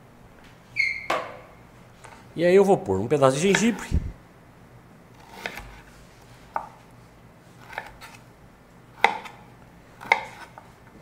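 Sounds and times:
knife chopping on wooden board: 5.2s - 5.9s, 6.5s - 6.8s, 7.6s - 8.2s, 9.0s - 10.6s.

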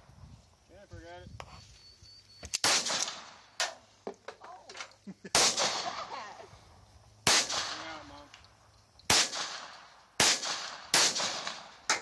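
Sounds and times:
pistol shots with echo: 2.6s - 3.8s, 5.4s - 6.2s, 7.2s - 8.1s, 9.1s - 12.0s.

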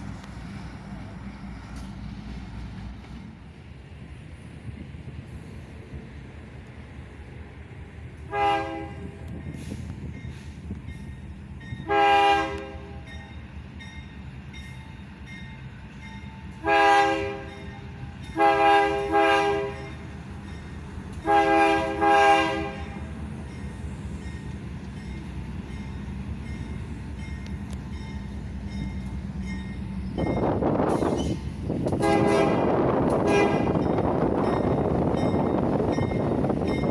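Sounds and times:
train rumbling: 0.0s - 36.9s
locomotive air horn blasts: 8.3s - 9.3s, 11.8s - 13.1s, 16.6s - 17.7s, 18.3s - 20.0s, 21.2s - 23.1s, 32.0s - 33.8s.

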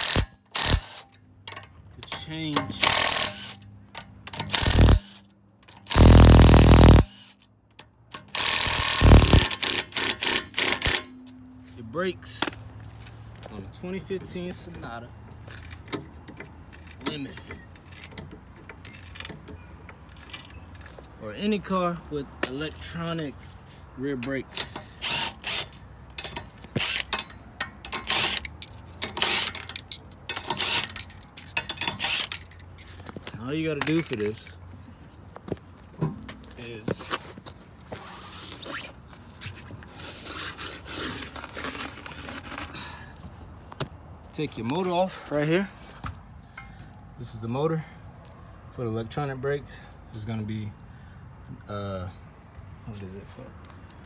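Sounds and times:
impact wrench hammering lug nuts: 0.0s - 1.1s, 2.7s - 3.6s, 4.3s - 5.2s, 5.8s - 7.2s, 8.2s - 11.1s
cordless driver whirring: 4.5s - 5.2s, 5.9s - 7.2s, 8.4s - 11.0s
short blips: 6.0s - 7.1s, 9.0s - 9.4s.

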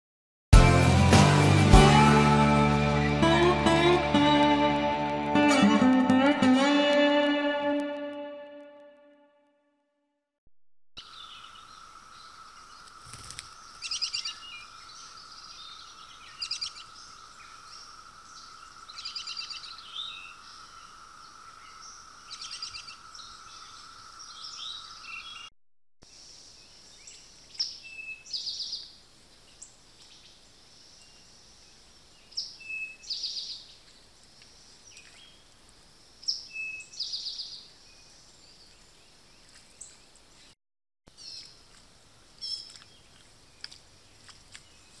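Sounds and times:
songbirds trilling: 11.0s - 25.5s.

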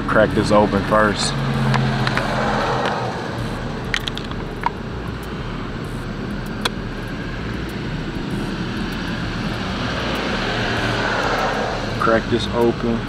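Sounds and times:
engine drone: 0.0s - 13.0s
sharp clicks: 1.6s - 12.0s.

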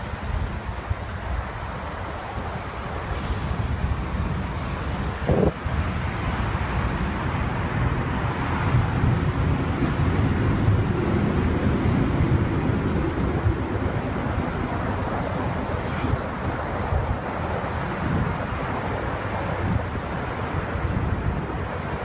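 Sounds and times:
city traffic: 0.0s - 22.0s
wind rumbling on microphone: 0.0s - 22.0s.

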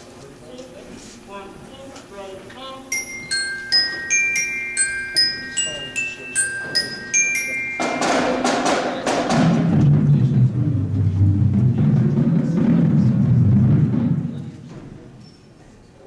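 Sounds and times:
bell-like mallet percussion notes: 2.9s - 9.7s
low drum rumble: 9.3s - 15.1s.

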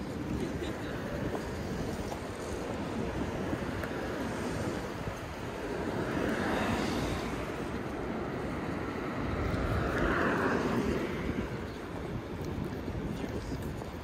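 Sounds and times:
traffic rumble: 0.0s - 14.0s
vehicle passing: 2.0s - 12.2s.

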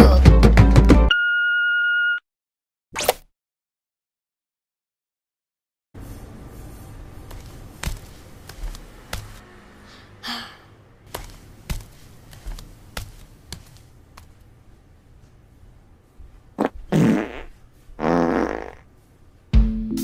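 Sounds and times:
cartoon fart sound effects: 16.6s - 18.9s.

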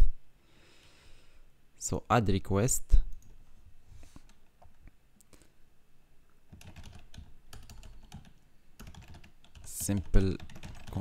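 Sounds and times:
typing on computer keyboard: 6.5s - 11.0s.

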